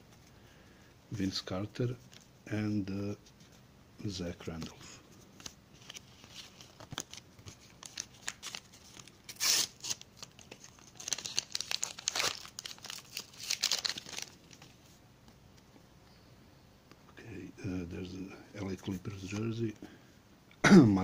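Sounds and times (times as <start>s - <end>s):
wrapper crinkling: 5.4s - 14.9s
wrapper tearing: 5.8s - 14.8s.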